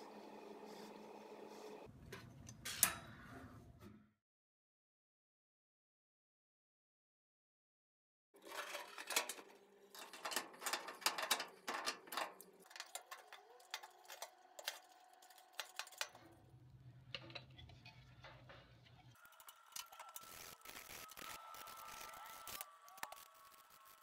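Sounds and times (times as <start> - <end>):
small metal parts clinking: 8.4 - 16.2.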